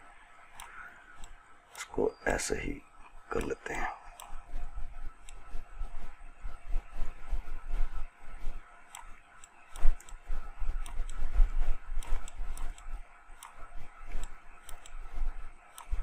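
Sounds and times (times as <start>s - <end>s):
computer mouse and keyboard clicks: 0.4s - 1.9s, 3.3s - 4.5s, 5.2s - 5.5s, 8.8s - 16.0s.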